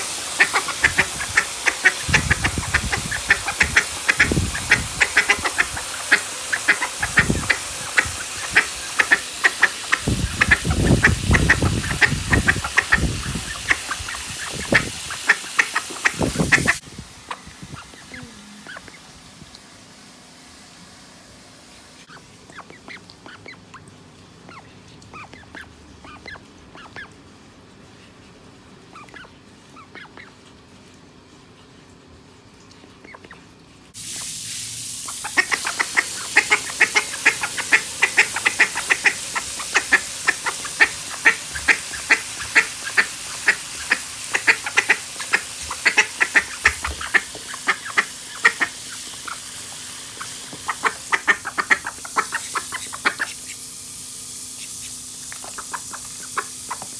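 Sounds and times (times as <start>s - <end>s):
hose nozzle spraying water: 0.0s - 18.1s, 34.0s - 56.9s
duck quacking: 0.4s - 19.0s, 35.1s - 49.4s, 50.2s - 53.6s, 55.4s - 56.9s.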